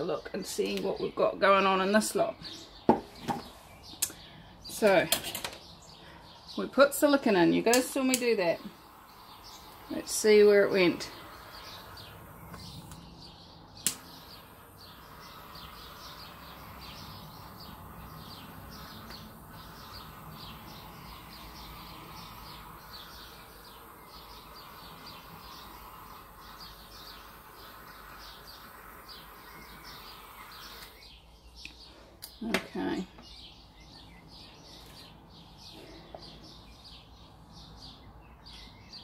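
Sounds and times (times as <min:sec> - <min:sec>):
torch hissing: 0:06.6 - 0:31.2.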